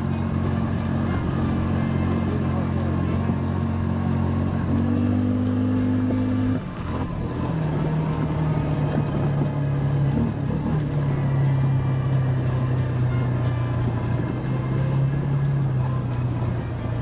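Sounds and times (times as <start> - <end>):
atv engine running: 0.0 - 17.0.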